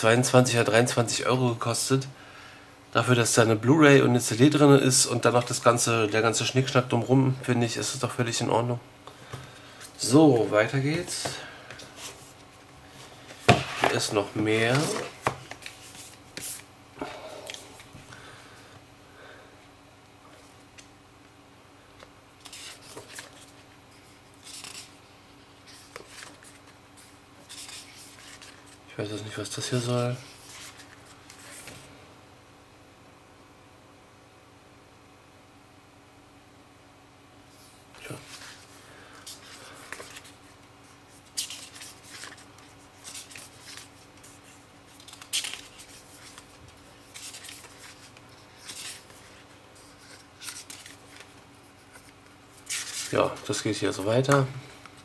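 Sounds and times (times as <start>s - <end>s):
book pages turning: 9.6s - 16.7s, 22.4s - 25.0s, 25.6s - 28.8s, 38.0s - 54.5s.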